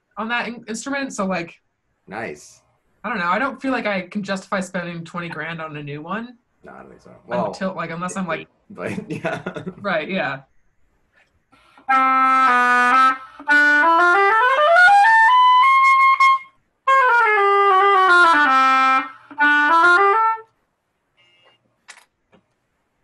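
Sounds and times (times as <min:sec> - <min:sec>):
oboe playing: 0:11.7 - 0:20.5.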